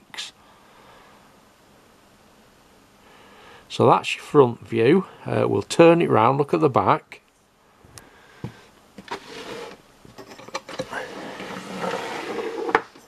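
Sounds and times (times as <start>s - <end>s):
rustling and scraping: 8.5s - 13.0s.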